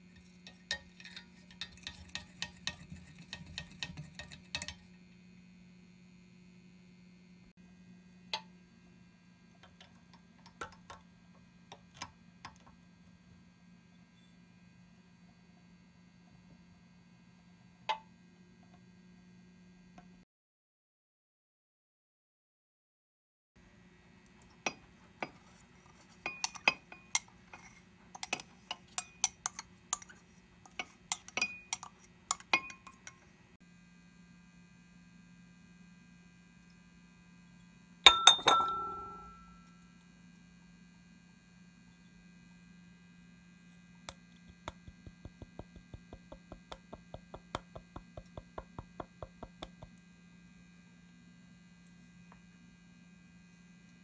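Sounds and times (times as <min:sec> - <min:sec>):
glassware clinking: 0:30.8 - 0:33.2, 0:38.1 - 0:39.7.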